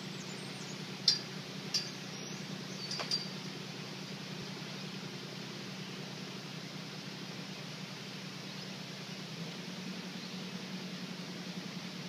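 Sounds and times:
metal gate clinking: 1.1 - 2.1, 2.8 - 3.4.

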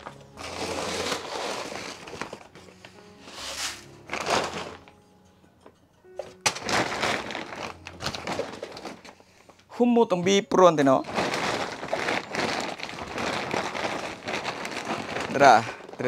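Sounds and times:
faint background music: 0.0 - 16.0
feed poured into plastic bucket: 0.4 - 2.5, 3.3 - 4.9.

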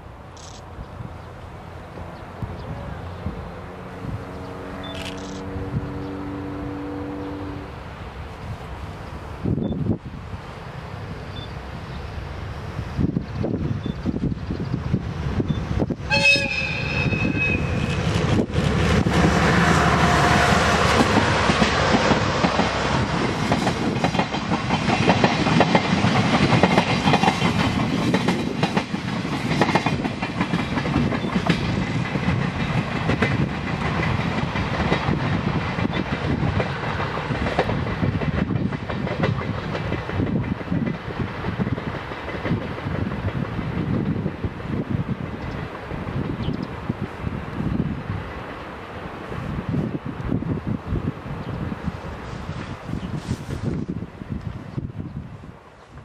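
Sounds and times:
locomotive horn blast: 3.8 - 7.8, 16.1 - 18.0
train wheels clattering over rail joints: 17.7 - 44.5.

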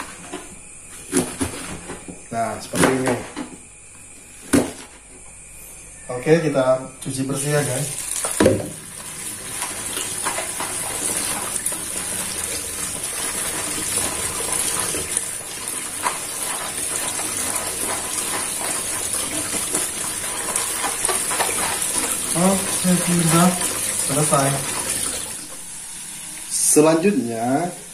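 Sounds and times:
tap water running: 7.0 - 27.9.

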